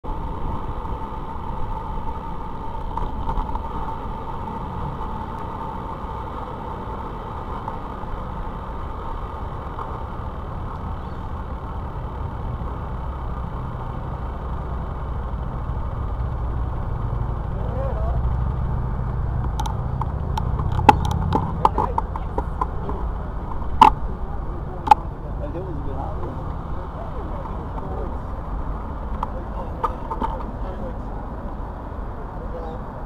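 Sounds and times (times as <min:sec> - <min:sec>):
bicycle road rumble: 0:00.0 - 0:33.0
wind buffeting: 0:00.0 - 0:33.0
faint steady whine: 0:00.1 - 0:33.0.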